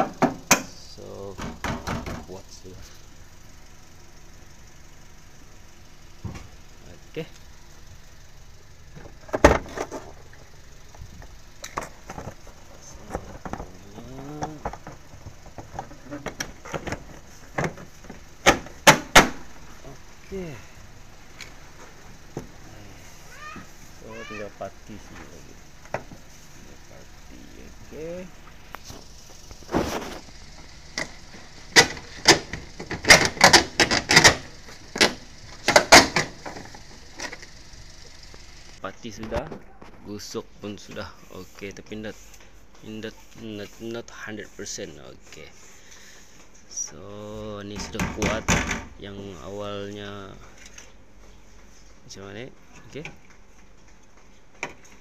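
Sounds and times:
knocks and clicks on car body: 0.0s - 0.7s, 1.4s - 2.3s, 14.4s - 19.4s, 31.7s - 37.4s.

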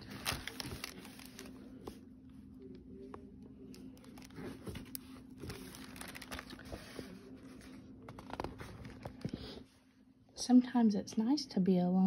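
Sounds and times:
paper pages rustling: 0.0s - 2.0s, 4.0s - 9.6s
plastic cover crinkling: 0.0s - 2.0s, 3.7s - 9.6s
faint low hum: 0.0s - 12.0s.

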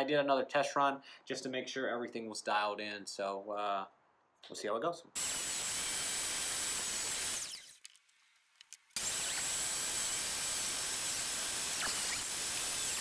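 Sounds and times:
table saw cutting wood: 5.2s - 7.8s, 9.0s - 13.0s.

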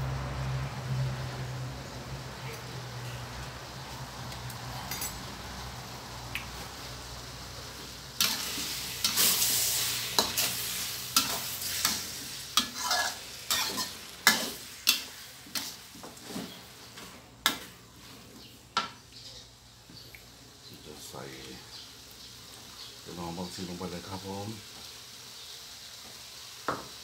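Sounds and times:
noodles sizzling in a wok: 5.2s - 27.0s
metal spatula scraping a pan: 8.2s - 16.6s.

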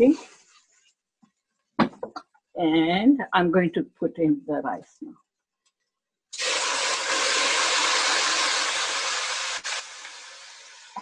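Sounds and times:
rice sizzling in hot oil: 6.4s - 11.0s.

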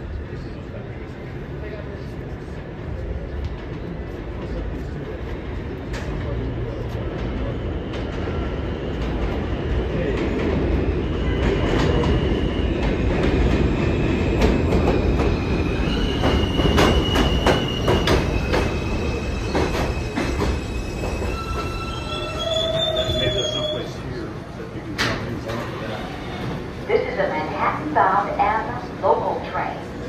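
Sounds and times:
train rumble: 0.0s - 30.0s
train wheels clacking: 11.3s - 22.0s
high wheel squeal: 15.8s - 24.0s.

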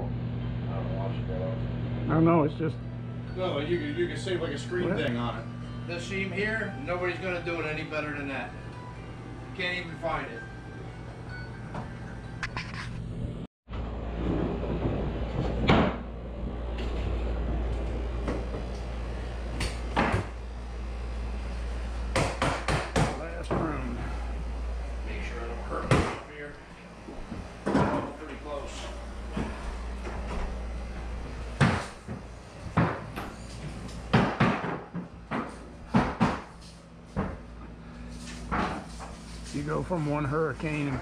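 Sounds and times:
steady low hum: 0.0s - 41.0s
knocks on wooden floorboards: 34.1s - 36.5s.

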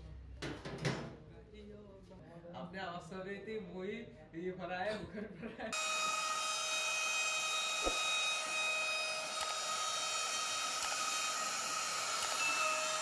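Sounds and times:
cutter milling wood hiss: 5.8s - 13.0s
router spindle high whine: 5.8s - 13.0s.

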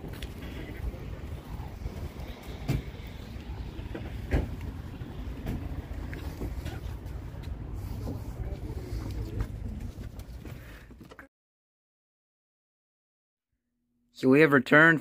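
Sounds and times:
wind buffeting microphone: 0.0s - 8.5s.

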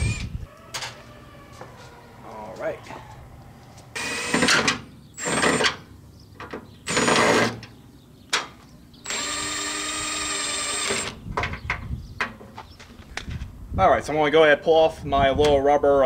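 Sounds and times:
impact driver whirring with whine: 0.0s - 0.4s, 4.0s - 5.8s, 6.9s - 7.6s, 9.0s - 11.2s.

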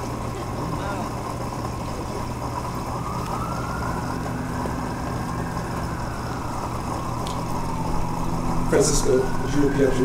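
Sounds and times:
low mechanical hum: 0.0s - 10.0s
faint rising and falling tone: 2.5s - 10.0s.

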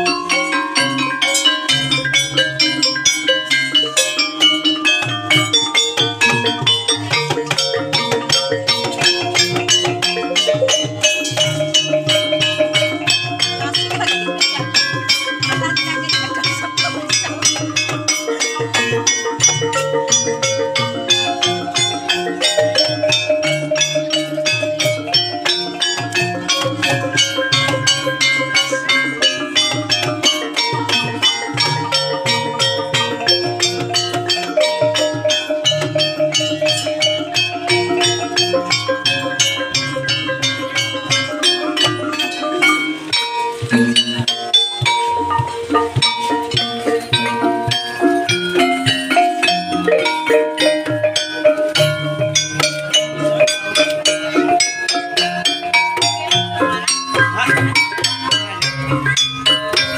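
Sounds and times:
metallophones playing fast runs: 0.0s - 59.9s
steady drum rhythm: 0.0s - 59.9s.

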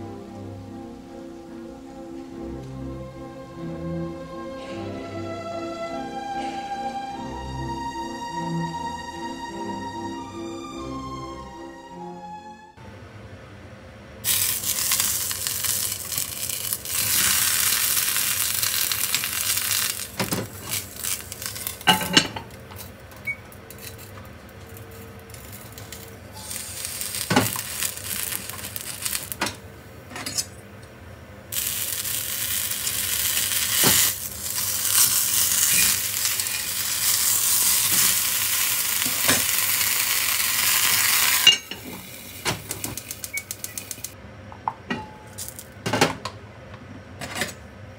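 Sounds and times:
eggplants sizzling in hot iron pot: 14.2s - 22.9s, 23.6s - 29.6s, 31.5s - 44.2s.

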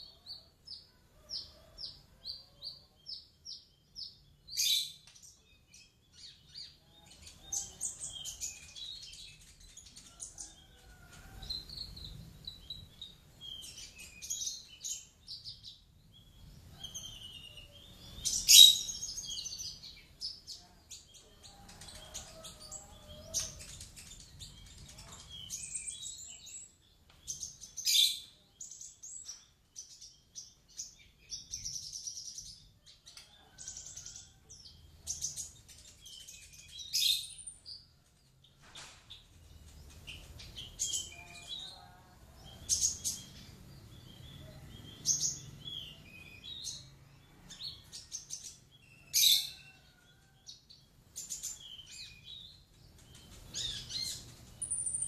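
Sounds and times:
songbirds chirping and twittering: 0.0s - 55.0s.

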